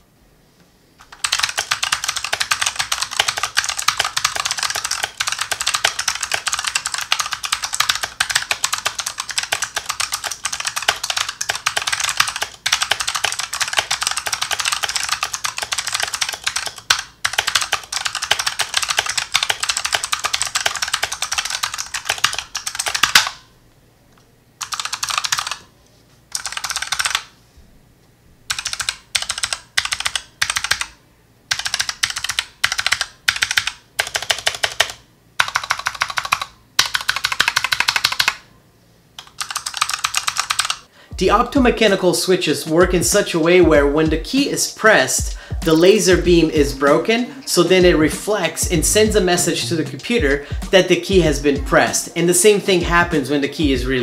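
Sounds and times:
mechanical keyboard clicks: 1.0 - 23.4, 24.6 - 25.6, 26.3 - 27.3, 28.5 - 30.9, 31.5 - 38.4, 39.2 - 40.8.

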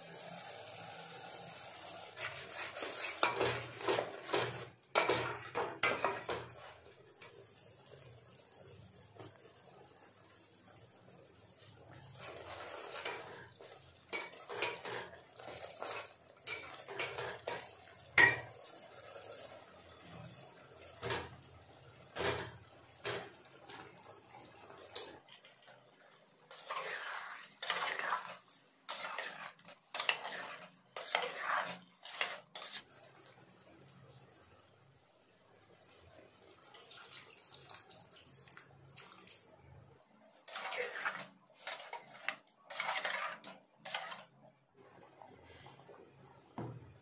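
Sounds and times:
spatula scraping metal pot: 2.1 - 7.3, 12.0 - 18.5, 26.5 - 33.0, 40.4 - 44.4
spatula clinking on pot: 15.9 - 18.5.

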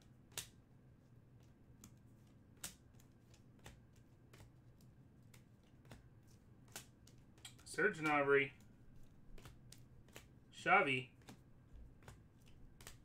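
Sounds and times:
trading cards clicking and sliding: 0.0 - 13.0.

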